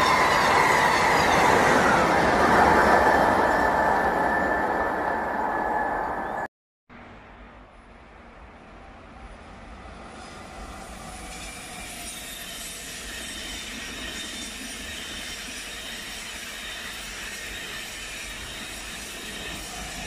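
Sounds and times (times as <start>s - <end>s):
train wheel and running noise: 7.8s - 20.0s.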